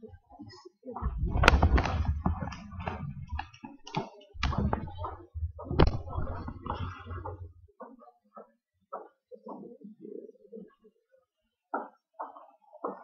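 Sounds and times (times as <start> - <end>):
microphone rubbing rumble: 1.0 - 7.7
microphone taps and clicks: 1.0 - 7.7.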